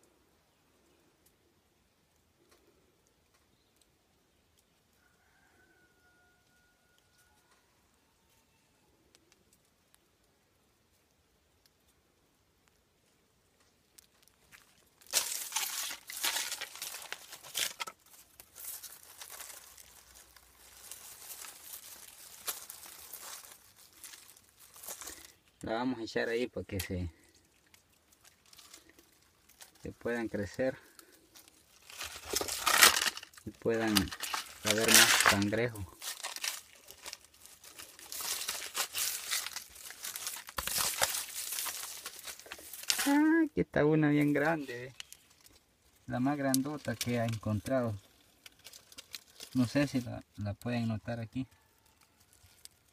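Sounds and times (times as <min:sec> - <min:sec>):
dry leaves rustling and crackling: 0:13.9 - 0:25.7, 0:26.8 - 0:52.9.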